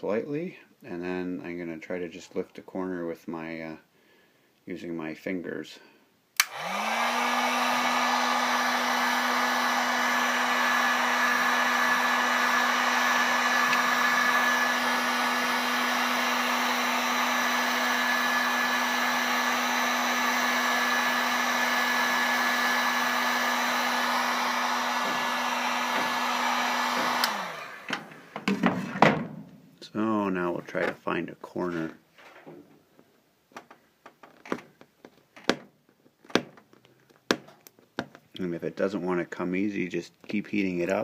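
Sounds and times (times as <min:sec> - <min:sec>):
heat gun fan rushing air: 0:06.4 - 0:28.8
motor hum: 0:23.2 - 0:28.2.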